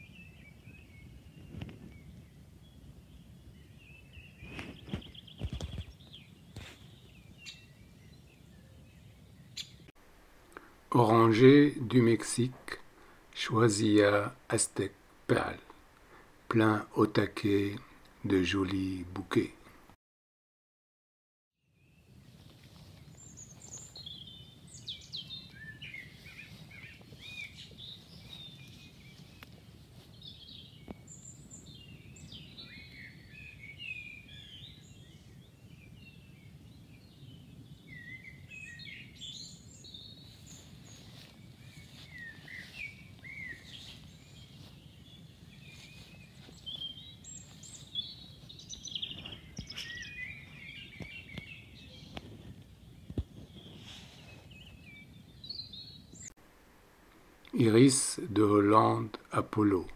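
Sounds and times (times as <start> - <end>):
small birds chirping: 0.0 - 19.7, 21.6 - 56.4, 57.0 - 59.9
low outdoor rumble: 10.0 - 17.0.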